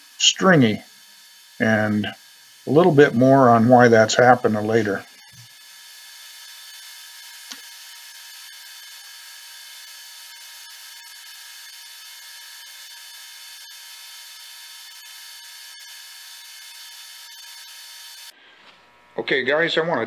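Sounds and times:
spindle drive whine: 0.0 - 1.0, 1.6 - 5.6.

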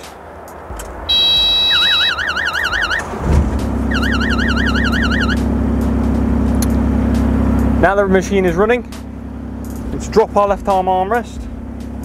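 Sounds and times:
diesel engine idling: 0.0 - 12.0
steady electronic beep: 1.1 - 3.1, 3.9 - 5.5
warbling warning alarm: 1.1 - 3.2, 3.8 - 5.5.

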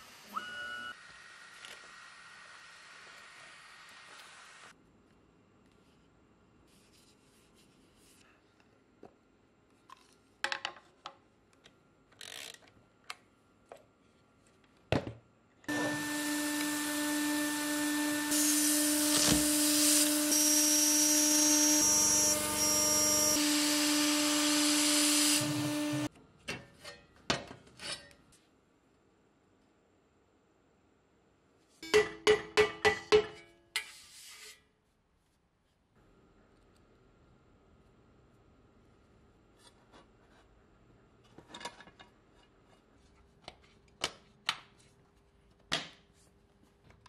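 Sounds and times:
router spindle milling metal: 15.7 - 26.1.

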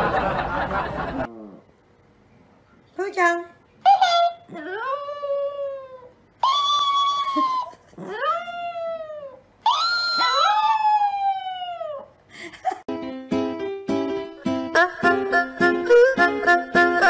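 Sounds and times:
dog howling: 4.6 - 12.1
dog yipping: 9.7 - 11.1
plucked-string music: 12.9 - 17.0.

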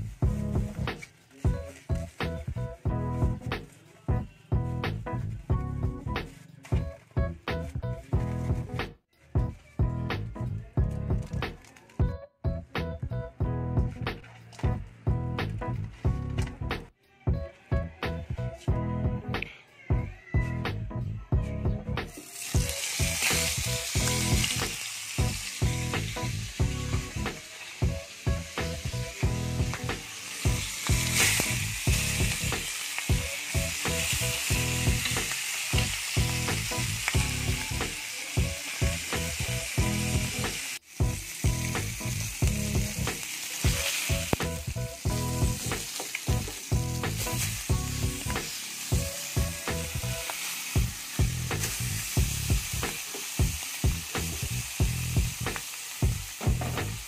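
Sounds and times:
regular low beat: 0.0 - 8.9, 9.8 - 16.9, 20.5 - 37.8, 38.4 - 50.2, 50.8 - 57.0
fish sizzling in hot oil: 22.1 - 57.0.

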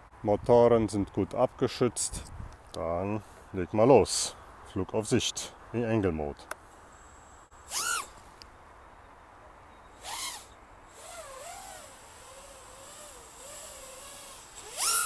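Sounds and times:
drone motors whining: 7.7 - 8.1, 10.0 - 15.0.

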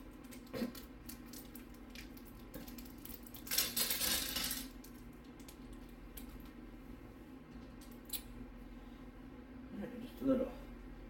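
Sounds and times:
screws rattling in plastic bag: 2.6 - 4.7.

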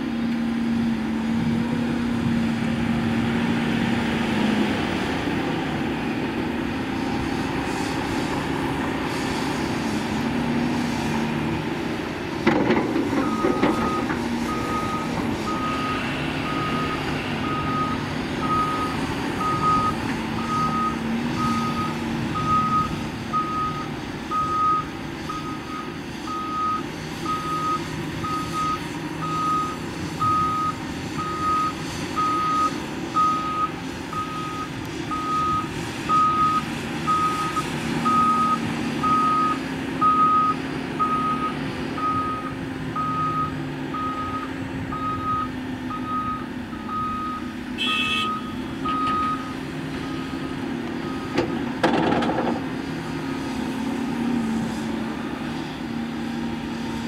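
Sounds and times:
diesel engines running: 0.0 - 57.0
reversing alarm beeping: 13.2 - 51.4.

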